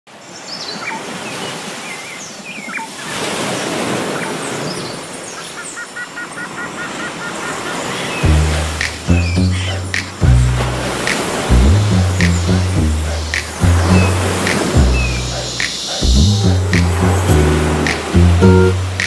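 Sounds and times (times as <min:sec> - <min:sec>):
ocean surf on beach: 0:00.1 - 0:05.6, 0:06.2 - 0:09.2, 0:09.8 - 0:19.0
birds chirping and calling: 0:04.7 - 0:08.3, 0:08.9 - 0:10.2, 0:10.9 - 0:18.1
short repeated notes: 0:08.2 - 0:19.0
deep bass note of music: 0:08.3 - 0:19.0.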